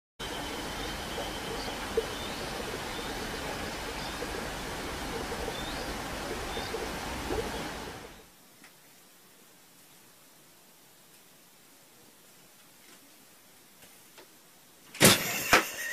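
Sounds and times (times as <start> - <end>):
faint bird chirps: 0.2 - 8.3
steady rushing hiss: 0.2 - 15.9.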